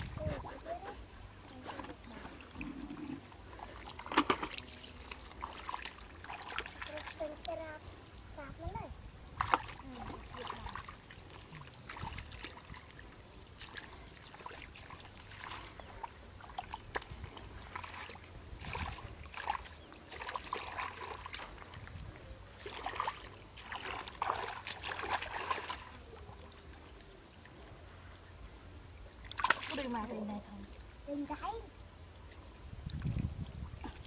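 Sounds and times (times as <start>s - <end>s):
hands sloshing in muddy water: 1.5s - 7.2s, 9.4s - 27.2s, 29.3s - 30.1s
small splashes and trickles: 1.5s - 27.9s, 28.9s - 34.0s.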